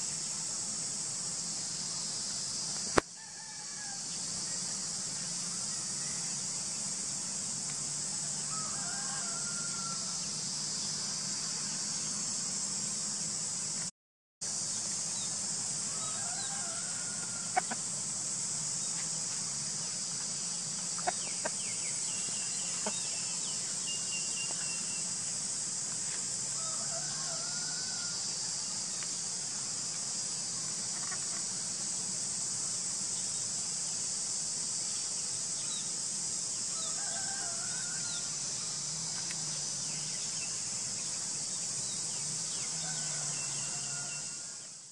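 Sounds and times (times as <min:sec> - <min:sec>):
steady high hiss: 0:00.0 - 0:44.9
rooster crowing: 0:03.2 - 0:04.1, 0:08.2 - 0:10.3, 0:15.9 - 0:17.8, 0:26.5 - 0:28.4, 0:36.7 - 0:38.4, 0:42.7 - 0:44.7.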